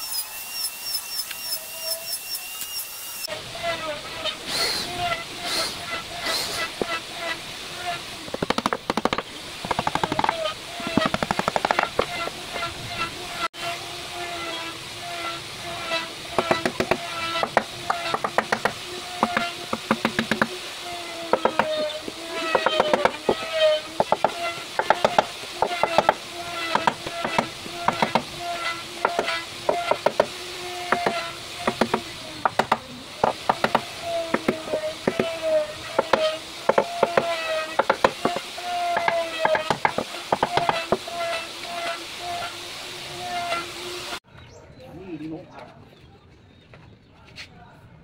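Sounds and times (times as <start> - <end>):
hammer tapping wooden tabletop: 8.3 - 10.4.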